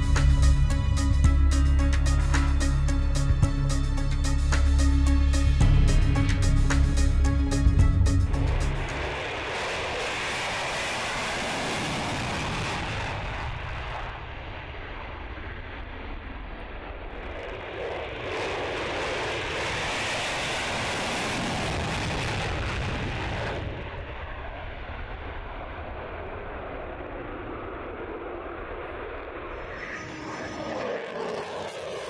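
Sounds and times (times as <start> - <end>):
jet engines roaring: 8.3 - 32.0.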